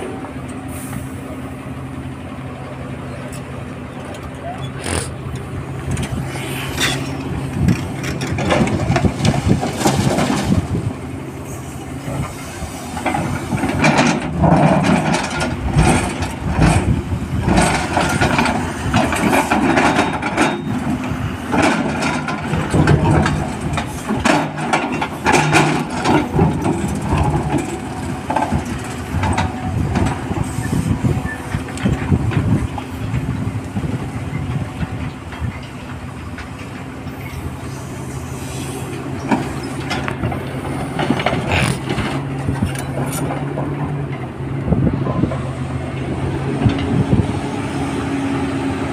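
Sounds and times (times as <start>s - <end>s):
diesel engine drone: 0.0s - 48.9s
rock scraping in excavator bucket: 40.7s - 43.6s.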